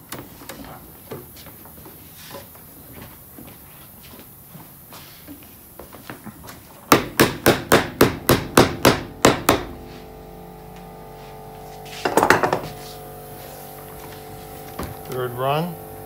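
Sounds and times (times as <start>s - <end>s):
hammer striking tacks into wood: 6.9s - 9.7s.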